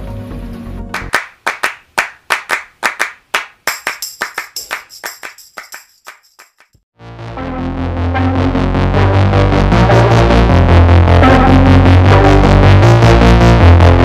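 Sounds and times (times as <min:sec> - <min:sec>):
sharp clap-like clicks: 0:01.0 - 0:06.8.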